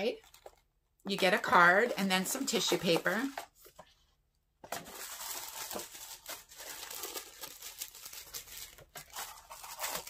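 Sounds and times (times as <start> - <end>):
tissue paper crinkling: 4.7 - 10.0.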